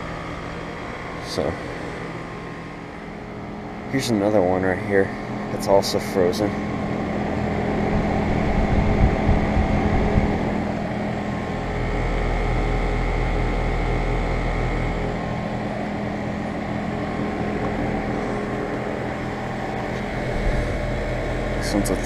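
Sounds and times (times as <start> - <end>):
heat pump fan and compressor hum: 0.0 - 22.0
low rumbling: 6.6 - 22.0.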